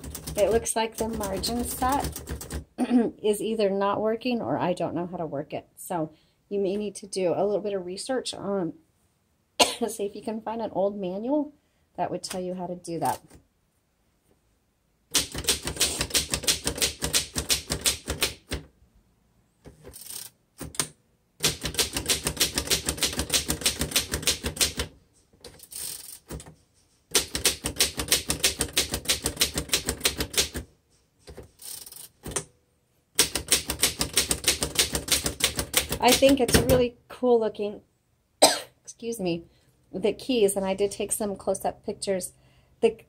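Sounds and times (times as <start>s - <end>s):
manual typewriter typing: 0.0s - 2.7s, 15.1s - 18.7s, 19.7s - 32.4s, 33.2s - 36.8s.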